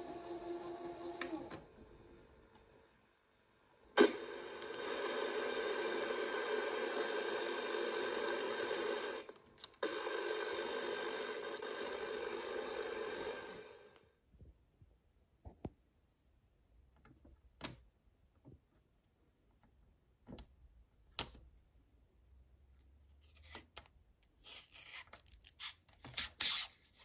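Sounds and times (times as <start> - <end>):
tv static hiss: 3.9 - 14.0.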